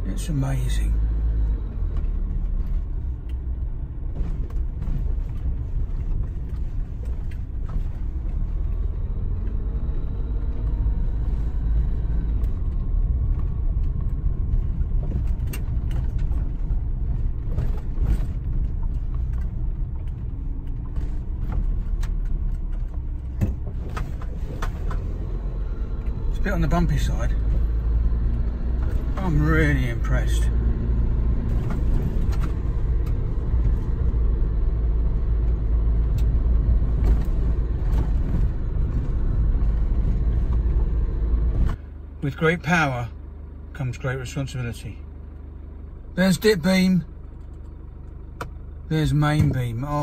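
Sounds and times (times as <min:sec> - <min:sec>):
engine and road rumble: 0:00.0 - 0:50.0
knocks and rattles over bumps: 0:01.0 - 0:41.9.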